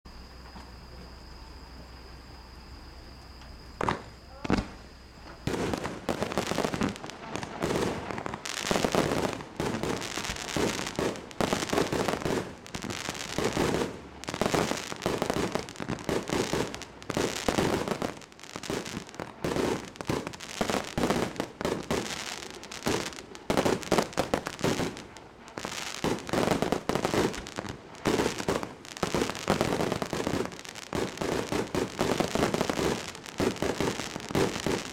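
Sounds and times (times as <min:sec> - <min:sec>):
firework launch thumps and bursts: 0:03.8 - 0:18.1.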